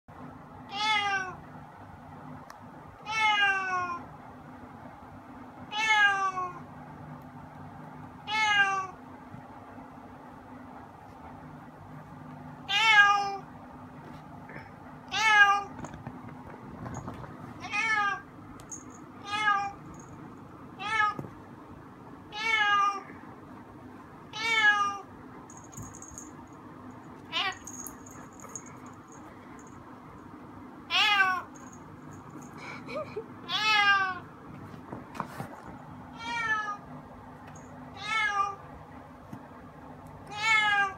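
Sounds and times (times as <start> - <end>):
cat meowing: 0.7 - 1.4, 3.0 - 4.0, 5.7 - 6.6, 8.3 - 9.0, 12.7 - 13.4, 30.9 - 31.5, 33.5 - 34.2, 36.2 - 36.8, 40.3 - 40.9.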